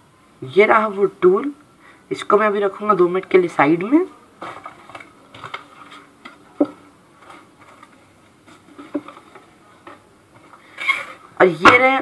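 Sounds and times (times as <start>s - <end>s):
packaging handled with light taps: 4.4s - 10.6s.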